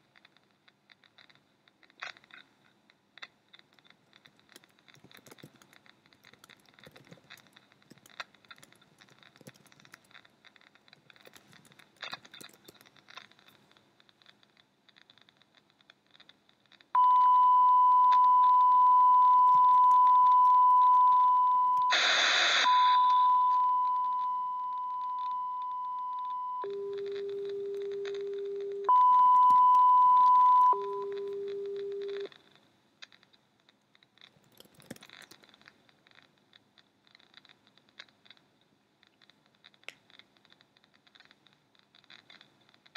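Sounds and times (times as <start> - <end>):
high-pitched test tone beep: 17.0 - 22.0, 22.6 - 27.3, 28.7 - 32.3
burst of hiss: 21.9 - 22.7.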